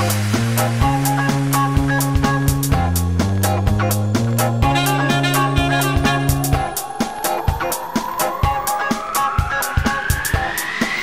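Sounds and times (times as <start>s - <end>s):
bass line: 0.0s - 6.8s
drum beat: 0.0s - 11.0s
guitar: 0.0s - 11.0s.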